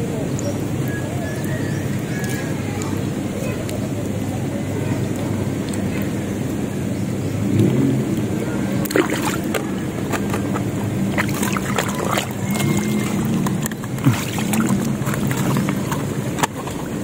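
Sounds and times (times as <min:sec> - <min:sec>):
water splashing and sloshing: 0:00.0 - 0:17.0
steady low hum: 0:05.0 - 0:17.0.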